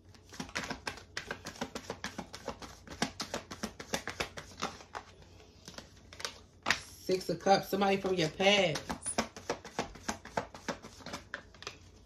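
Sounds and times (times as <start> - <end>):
cards being shuffled: 0.0 - 6.8, 8.6 - 12.0.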